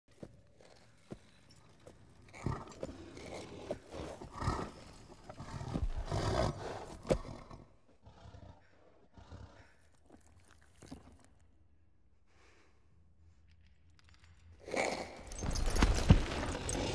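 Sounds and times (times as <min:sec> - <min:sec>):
horse hooves stamping: 0:00.1 - 0:07.6, 0:15.2 - 0:16.9
horse snorting and blowing: 0:02.3 - 0:09.8
horse sniffing breaths: 0:02.3 - 0:10.0.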